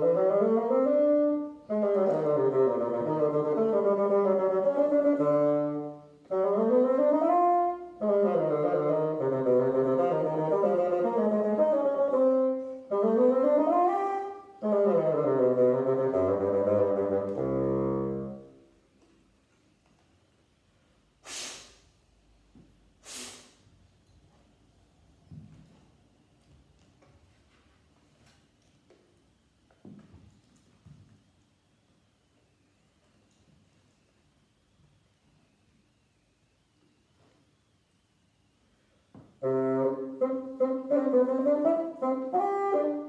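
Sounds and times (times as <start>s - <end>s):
bassoon melody: 0.0s - 18.7s, 39.4s - 43.0s
short sharp noises: 21.2s - 22.0s, 23.0s - 23.7s.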